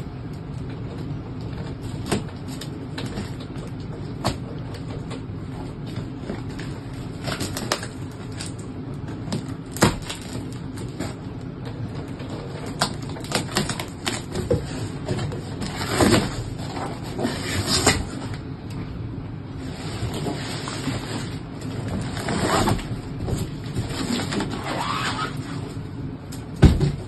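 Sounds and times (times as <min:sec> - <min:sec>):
cardboard flaps rustling: 0:00.6 - 0:18.5, 0:19.6 - 0:27.0.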